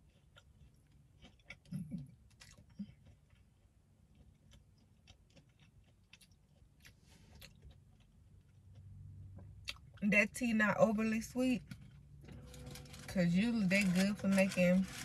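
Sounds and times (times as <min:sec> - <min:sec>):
person chewing food: 0:00.0 - 0:10.0.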